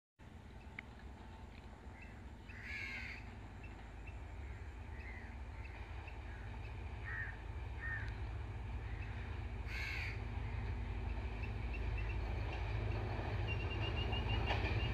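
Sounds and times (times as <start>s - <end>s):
train rumble: 0.2s - 14.9s
crow cawing: 2.5s - 3.3s, 6.3s - 8.2s, 8.8s - 10.2s.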